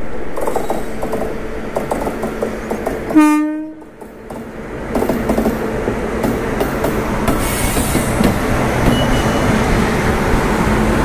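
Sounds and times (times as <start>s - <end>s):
train rumbling on track: 0.0s - 11.0s
train horn blast: 3.1s - 3.9s.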